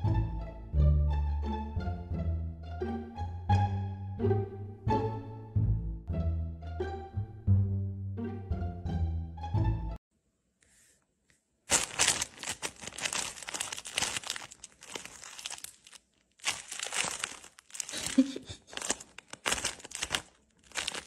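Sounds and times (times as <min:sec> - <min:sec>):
plastic bag crinkling: 0:11.7 - 0:21.0.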